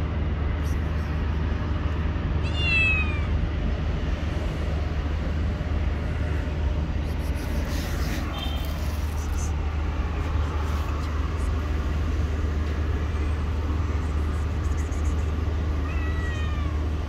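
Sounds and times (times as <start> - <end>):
steady low rumble: 0.0 - 17.0
cat meowing: 2.4 - 3.4, 15.8 - 16.9.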